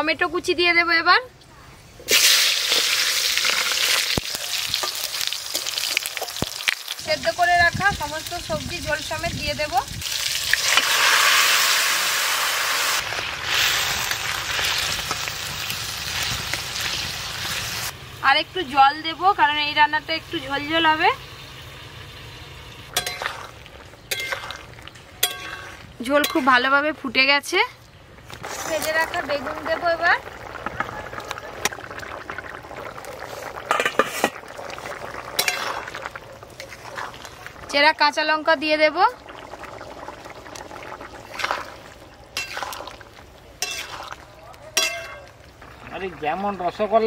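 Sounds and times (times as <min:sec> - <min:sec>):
curry bubbling: 0:02.1 - 0:17.8, 0:20.3 - 0:47.0
loud sizzling in hot oil: 0:02.1 - 0:26.8, 0:28.4 - 0:47.0
spatula scraping steel bowl: 0:23.0 - 0:24.6, 0:25.2 - 0:26.6, 0:43.6 - 0:44.2.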